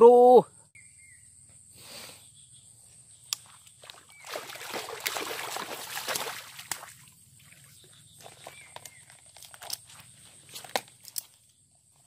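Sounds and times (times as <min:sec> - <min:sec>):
fish splashing in water: 0:03.8 - 0:08.6.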